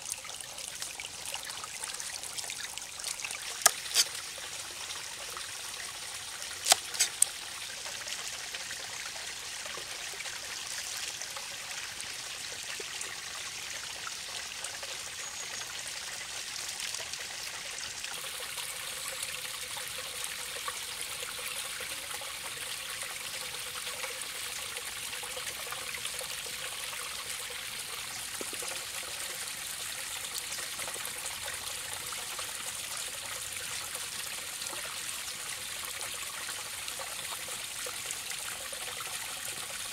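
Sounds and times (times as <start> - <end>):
stream trickling: 0.0 - 39.9
knife cuts on wooden chopping block: 3.6 - 4.1, 6.6 - 7.2.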